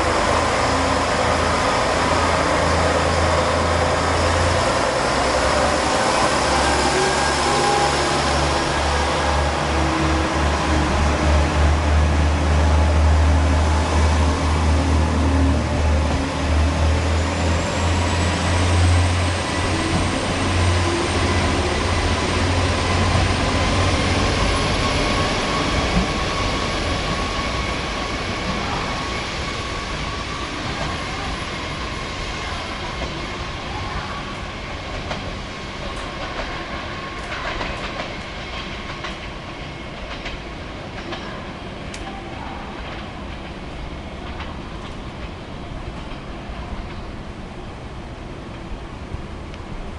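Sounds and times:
train wheels clicking over rail joints: 34.8s - 42.2s, 42.8s - 47.2s.

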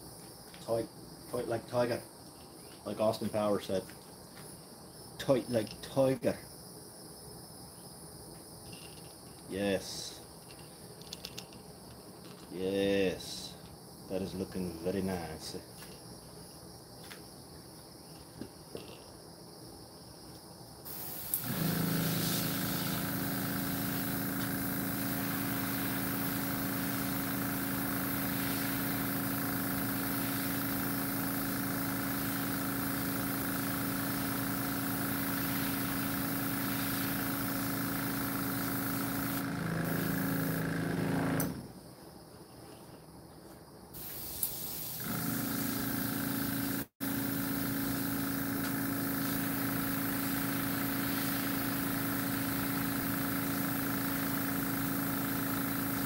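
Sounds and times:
compressor motor humming: 20.9s - 41.7s, 44.9s - 56.0s.

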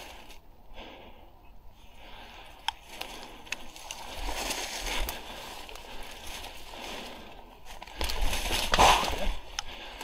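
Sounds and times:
footsteps on leafy path: 2.3s - 10.0s
leaves brushing against clothing: 2.9s - 9.4s.

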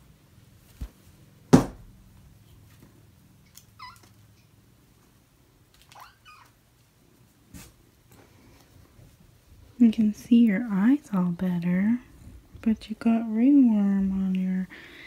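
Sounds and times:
loud thump: 1.5s - 1.9s.

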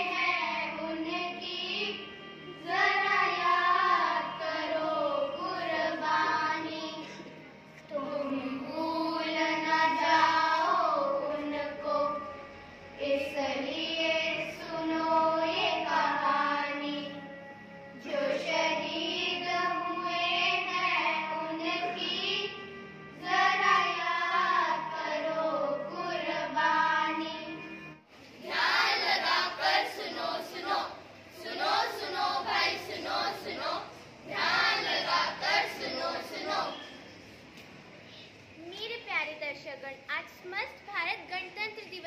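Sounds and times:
girls singing in unison: 0.0s - 7.3s, 7.9s - 17.4s, 18.0s - 37.0s
children's voices: 0.0s - 12.2s, 28.3s - 37.1s, 38.0s - 42.0s.

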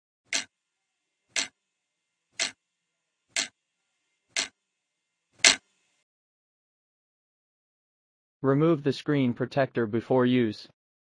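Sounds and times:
clock ticking: 0.3s - 0.5s, 1.3s - 1.6s, 2.4s - 2.6s, 3.3s - 3.6s, 4.4s - 4.6s, 5.4s - 5.6s.

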